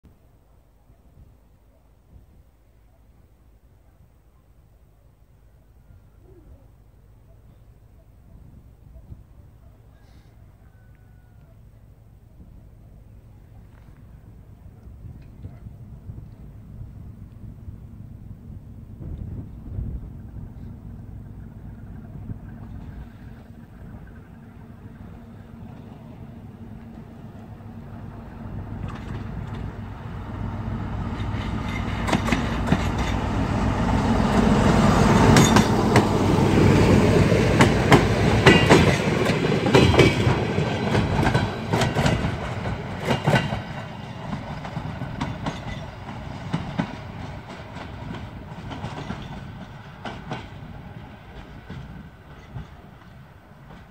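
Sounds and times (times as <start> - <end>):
train wheels clicking over rail joints: 28.0 - 30.4, 31.0 - 53.9.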